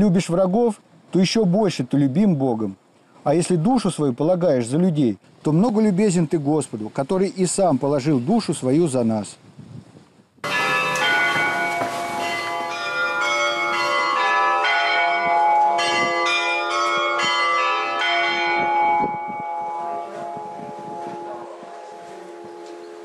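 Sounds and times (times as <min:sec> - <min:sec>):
church bells ringing: 0:10.4 - 0:23.0.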